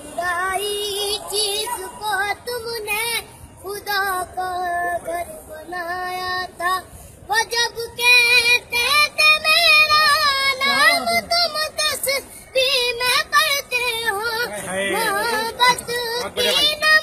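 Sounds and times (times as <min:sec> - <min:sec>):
girl singing: 0:00.0 - 0:17.0.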